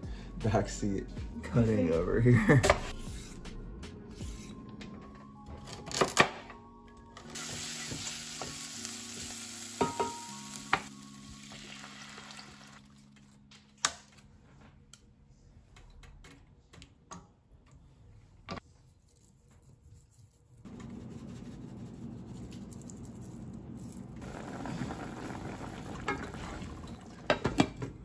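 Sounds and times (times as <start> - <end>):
food sizzling in saucepan: 7.3 - 12.8, 24.2 - 27.2.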